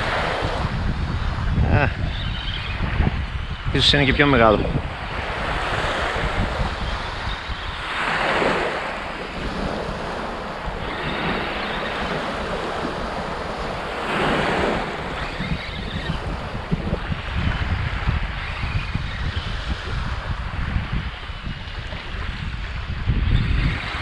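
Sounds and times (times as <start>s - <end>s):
wind buffeting microphone: 0.0s - 24.0s
small waves on pebble beach: 4.9s - 16.6s.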